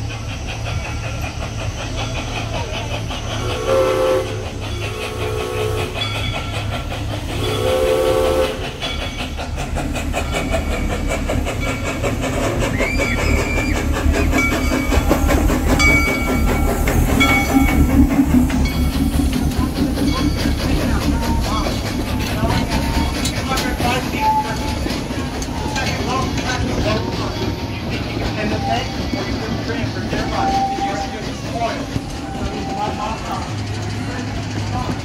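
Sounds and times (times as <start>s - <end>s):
train rumbling: 0.0s - 35.0s
wheels clacking over rail joints: 0.0s - 35.0s
steam locomotive whistle: 3.4s - 6.0s, 7.3s - 8.8s, 30.3s - 31.2s.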